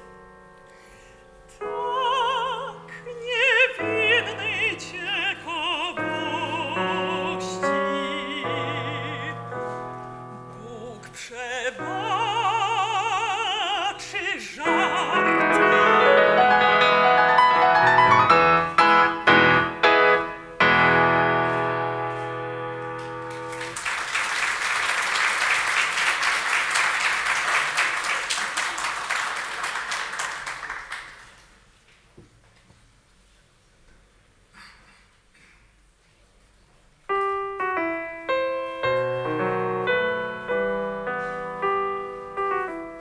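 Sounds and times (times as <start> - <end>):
grand piano: 0.0 - 28.4, 36.8 - 43.0
woman singing operatically: 1.6 - 9.6, 10.6 - 17.0
audience applause: 23.0 - 31.6.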